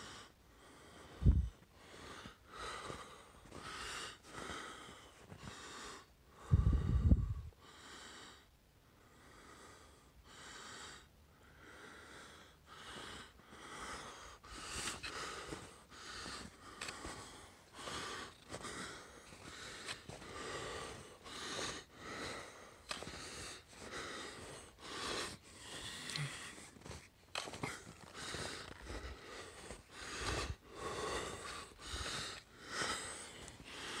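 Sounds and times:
heavy rapid breathing: 0.0 - 34.0
rumble on microphone: 6.4 - 7.5.

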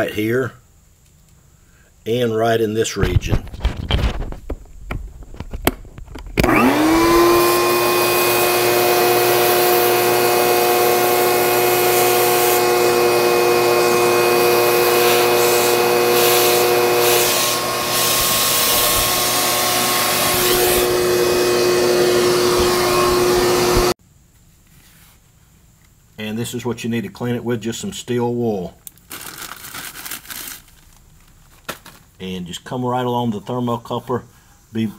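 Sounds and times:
shop vac motor whine: 6.4 - 24.0.

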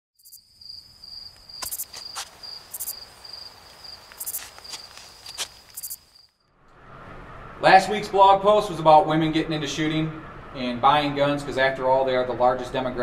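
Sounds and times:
high insect buzzing calls: 0.2 - 6.4
cricket chirping: 0.2 - 6.6.

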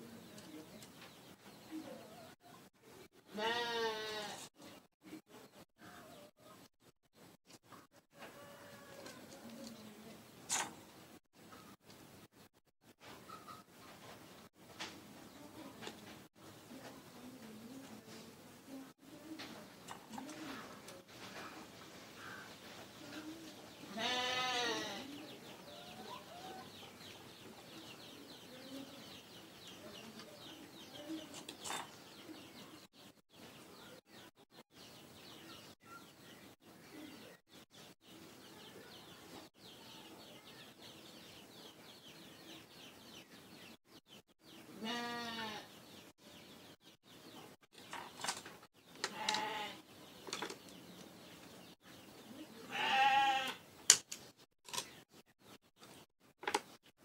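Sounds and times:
faint background noise: 0.0 - 57.0
goat bleating: 3.3 - 4.4, 23.9 - 25.1, 44.8 - 45.7, 49.1 - 49.8, 52.7 - 53.6.

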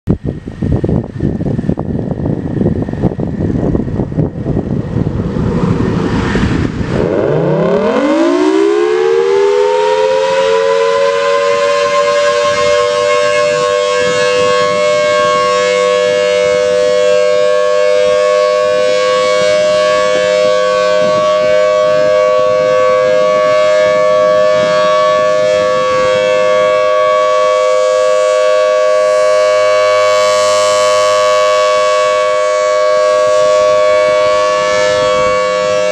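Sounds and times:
rushing noise: 0.4 - 10.7
warning siren wailing: 1.7 - 35.9.

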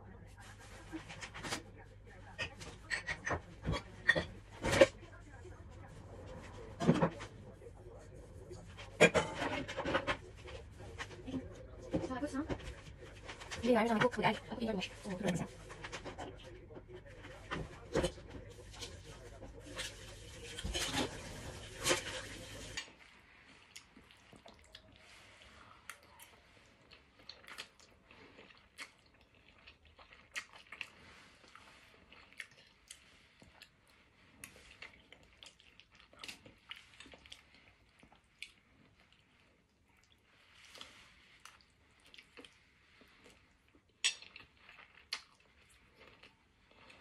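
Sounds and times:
dishes clattering: 2.4 - 5.0, 8.8 - 10.6
chewing: 14.9 - 47.0.

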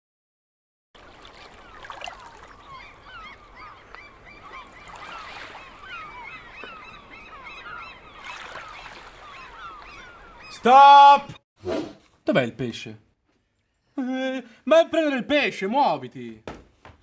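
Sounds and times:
flock of birds calling: 1.6 - 11.4.

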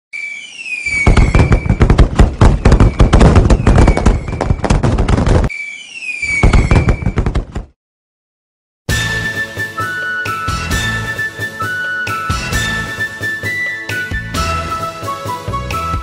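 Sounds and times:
firework whistle falling in pitch: 0.1 - 4.6, 5.5 - 7.2
fireworks crackling and banging: 0.6 - 5.5, 6.2 - 7.6
music: 8.9 - 16.0.

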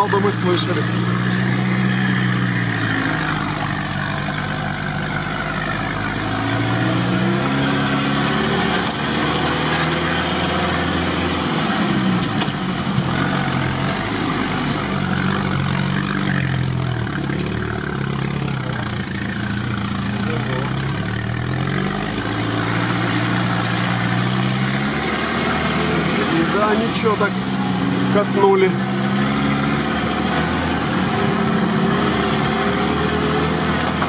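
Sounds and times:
vehicle driving through water and mud: 0.0 - 34.0.

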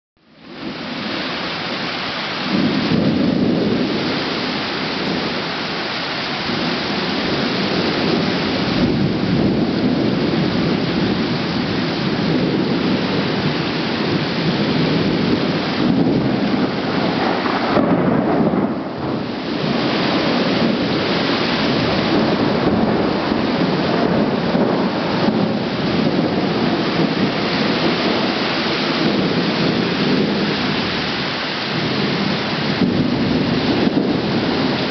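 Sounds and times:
heavy rain falling: 0.2 - 34.9.

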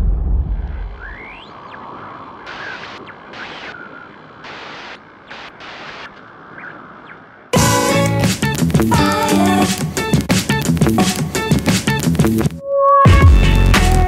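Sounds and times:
deep boom: 0.0 - 1.4
steady hiss: 1.2 - 7.0.

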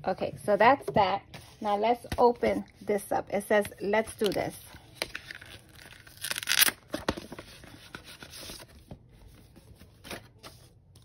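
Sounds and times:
paper and card rustling: 3.9 - 11.0.

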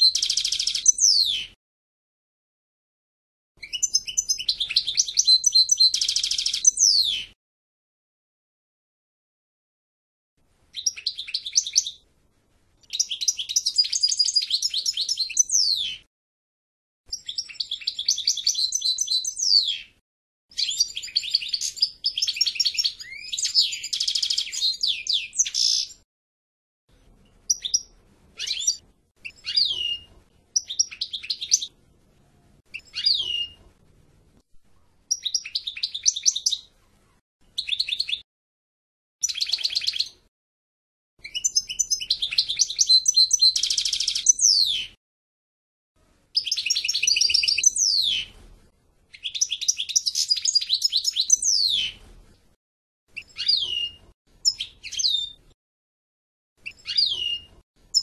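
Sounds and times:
goldfinch singing: 0.0 - 1.6, 3.6 - 7.3, 10.8 - 12.0, 12.9 - 16.0, 17.1 - 19.9, 20.5 - 26.0, 27.5 - 31.7, 32.7 - 33.6, 35.1 - 36.7, 39.2 - 40.2, 41.2 - 45.0, 46.4 - 48.3, 49.1 - 52.0, 53.2 - 55.4, 56.6 - 58.0.

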